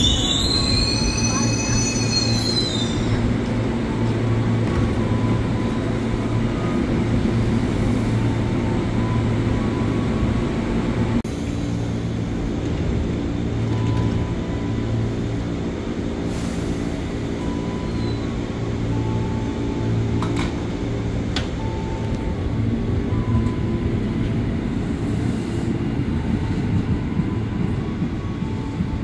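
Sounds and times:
train brakes squealing: 0:00.0 - 0:03.3, 0:16.3 - 0:20.1.

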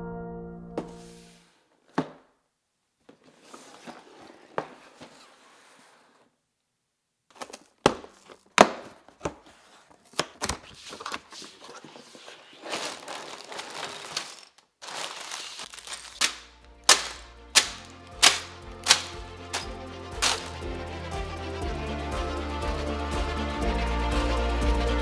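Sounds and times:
plastic bags crinkling: 0:09.6 - 0:20.6
background music with even beat: 0:16.8 - 0:25.0.

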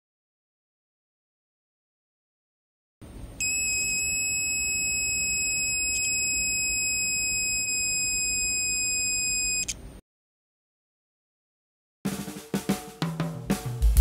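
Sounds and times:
high-pitched alarm buzzer: 0:03.4 - 0:09.7.

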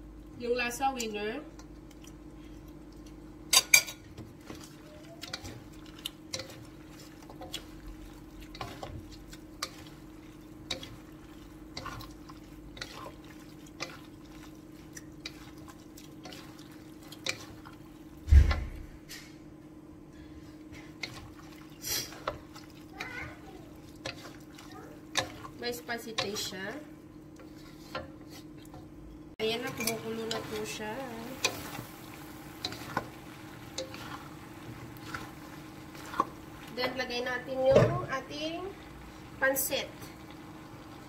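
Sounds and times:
wooden spatulas scraping a wok: 0:04.4 - 0:17.8, 0:20.8 - 0:26.8, 0:27.4 - 0:28.6, 0:29.4 - 0:38.1
heavy thump: 0:18.3 - 0:19.0.

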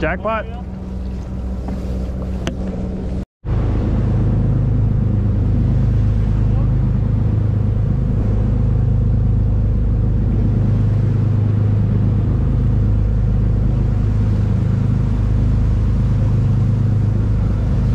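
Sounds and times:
boat engine drone: 0:00.0 - 0:17.9
churning wake rushing: 0:00.0 - 0:17.9.

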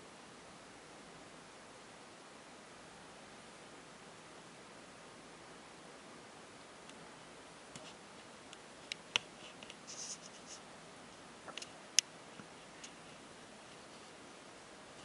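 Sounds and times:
quiet hiss: 0:00.0 - 0:15.0
scratchy rustles: 0:09.3 - 0:11.6, 0:12.4 - 0:14.2.

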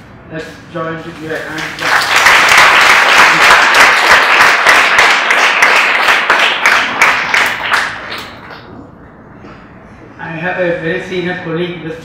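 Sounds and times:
audience applauding: 0:01.6 - 0:08.6.

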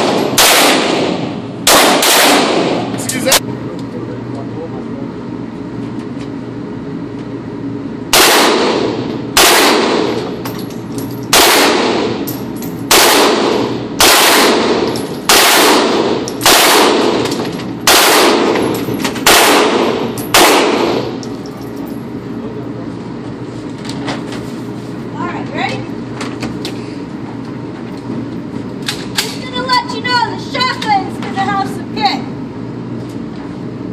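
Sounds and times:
rifle shots echoing indoors: 0:00.0 - 0:03.0, 0:08.1 - 0:10.3, 0:11.3 - 0:12.3, 0:12.9 - 0:21.2.

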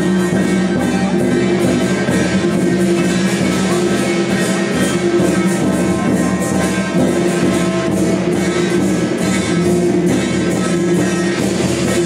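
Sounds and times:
loud music with held notes: 0:00.0 - 0:12.0.

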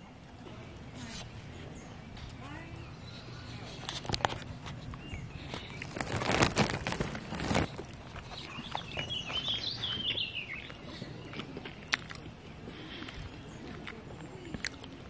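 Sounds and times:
rustling noise: 0:03.4 - 0:10.1
songbird twittering: 0:08.2 - 0:12.1.

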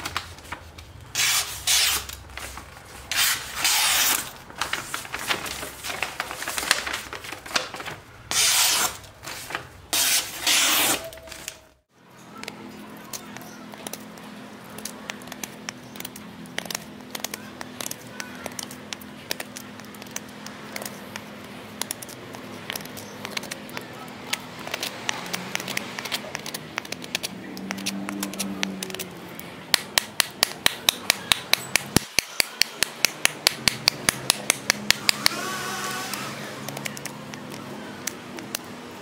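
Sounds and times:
knife chopping wood: 0:29.7 - 0:35.4.

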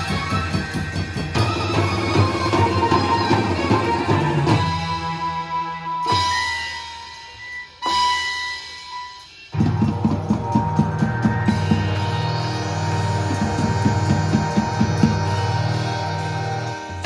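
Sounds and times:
drum kit and marching drums: 0:00.0 - 0:17.0
electronic keyboard melody: 0:00.0 - 0:17.0
cymbal crashes: 0:06.0 - 0:17.0.

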